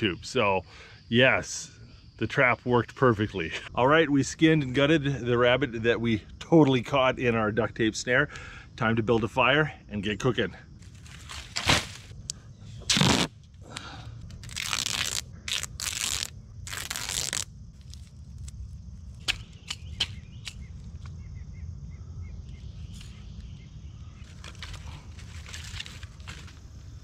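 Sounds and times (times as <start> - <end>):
duct tape ripping: 11.2 - 12.1, 12.9 - 13.3, 14.4 - 18.1.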